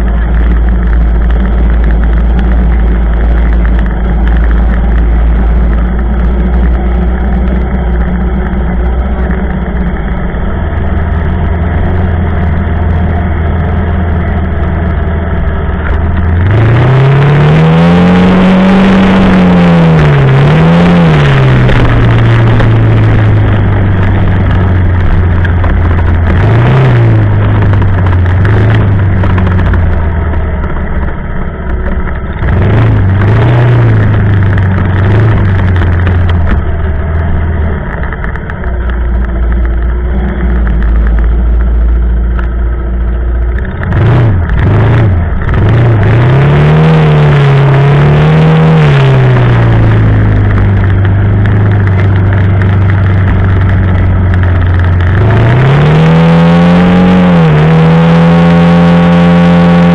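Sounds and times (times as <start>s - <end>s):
steady rushing noise: 0.0s - 59.9s
quad bike engine revving: 14.7s - 30.4s, 31.8s - 38.3s, 43.6s - 59.9s.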